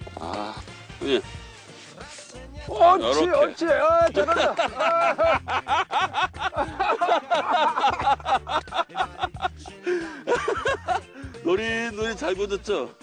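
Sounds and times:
background music: 0.0s - 13.0s
man laughing hard: 3.9s - 11.1s.

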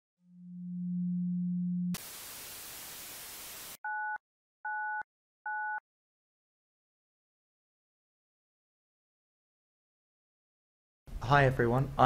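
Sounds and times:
static hiss: 2.0s - 3.8s.

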